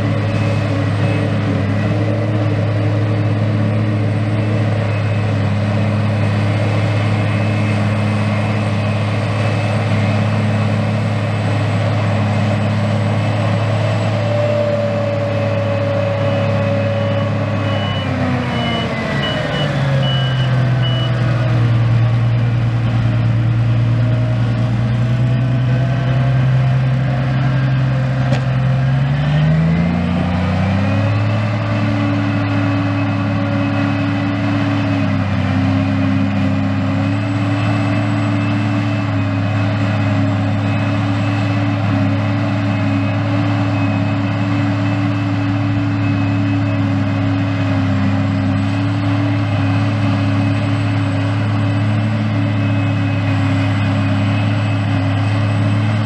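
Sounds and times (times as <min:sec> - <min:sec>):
forage harvester chopping grass: 0:27.2 - 0:28.7.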